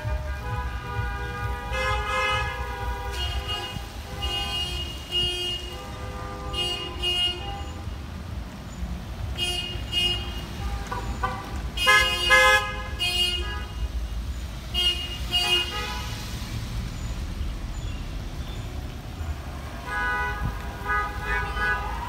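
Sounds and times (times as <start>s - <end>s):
car horns honking: 0.0s - 8.4s, 9.2s - 16.3s, 19.6s - 22.0s
low rumble of traffic: 0.0s - 22.0s.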